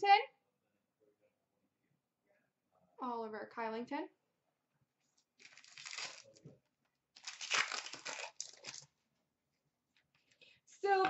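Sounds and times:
foil wrapper tearing and crinkling: 0:05.4 - 0:06.4, 0:07.2 - 0:08.9.

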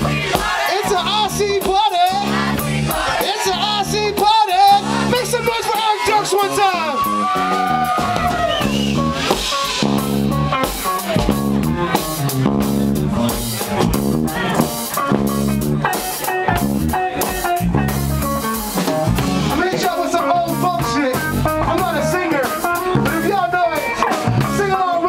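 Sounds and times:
drum kit: 0:00.0 - 0:25.0
electric bass: 0:00.0 - 0:25.0
electric guitar: 0:06.5 - 0:25.0.

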